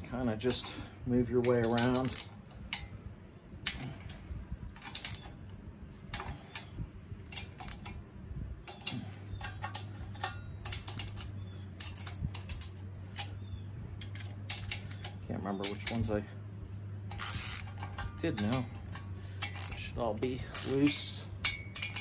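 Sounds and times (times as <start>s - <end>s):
socket ratchet clicking: 17.0s - 19.8s.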